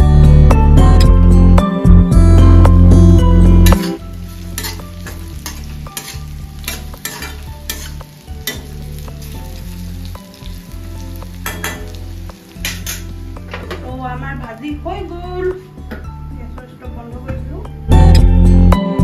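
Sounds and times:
vegetables sizzling in hot oil: 2.9 - 15.9
spatula scraping pan: 3.6 - 8.8.

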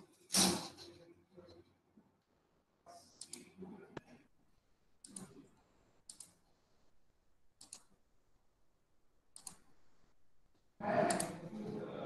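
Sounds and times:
computer mouse clicks: 3.0 - 4.1, 5.0 - 6.5, 7.6 - 8.0, 9.3 - 9.8, 11.1 - 11.4.

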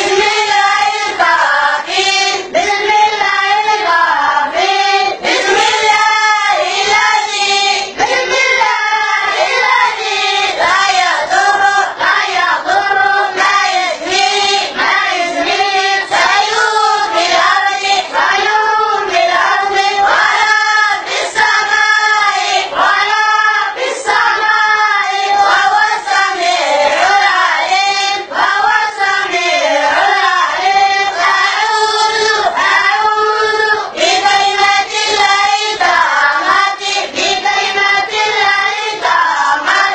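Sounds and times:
boys singing in unison: 0.0 - 39.9.

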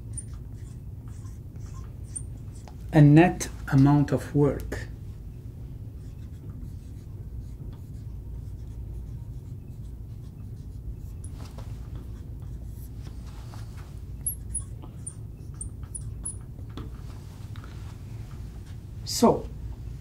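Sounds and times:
marker scratching on glass: 0.0 - 1.3, 2.0 - 2.7, 6.0 - 11.4, 14.2 - 16.5
marker squeaking: 0.0 - 2.7, 6.0 - 11.4, 14.2 - 16.8
low background hum: 0.0 - 20.0.

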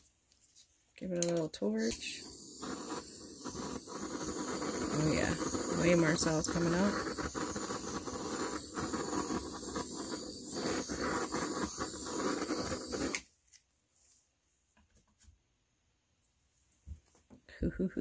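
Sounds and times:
gas torch flame hissing: 1.0 - 13.3.

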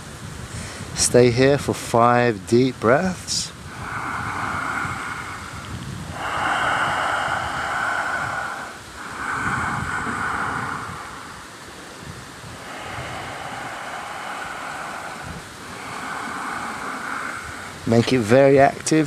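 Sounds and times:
slow deep breathing: 0.3 - 1.1, 3.2 - 18.6.

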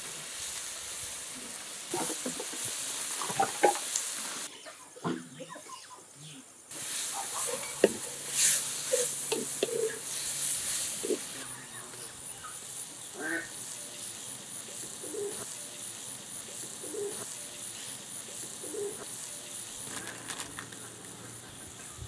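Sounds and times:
onions sizzling in oil: 0.0 - 4.6, 6.7 - 22.0
faint thin high whine: 0.0 - 22.0
wooden spatula scraping pot: 7.3 - 11.3.

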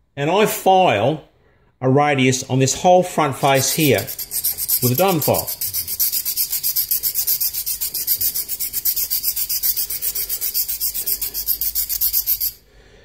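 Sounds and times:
file rasping on metal: 3.4 - 12.6.

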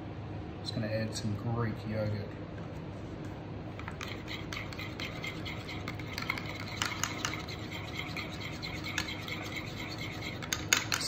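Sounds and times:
low background hum: 0.0 - 11.0
spoon clinking and scraping bowl: 3.8 - 11.0.

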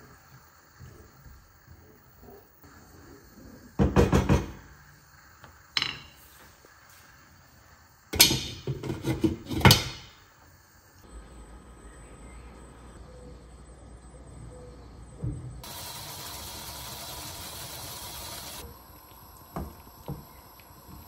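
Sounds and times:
cookware and cupboard doors banging: 3.8 - 4.6, 8.2 - 10.1.

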